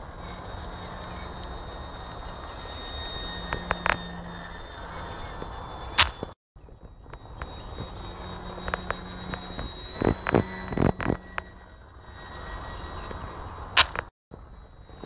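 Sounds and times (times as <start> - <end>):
model plane electric motor whine: 0.0 - 15.0
sharp clicks and knocks: 13.8 - 14.1.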